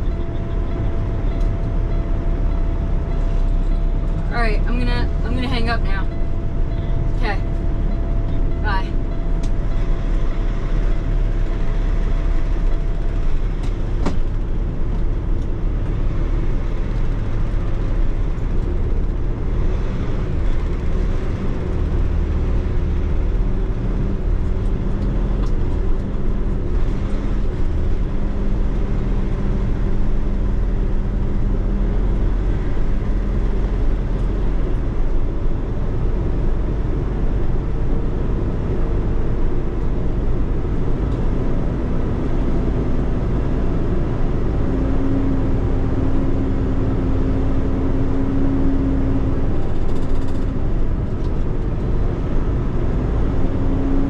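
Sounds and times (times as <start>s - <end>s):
diesel truck engine drone: 0.0s - 54.0s.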